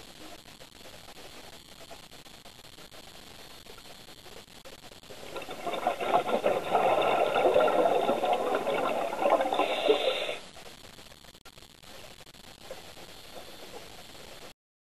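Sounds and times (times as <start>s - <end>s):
underwater regulator bubbling: 5.1s - 10.4s.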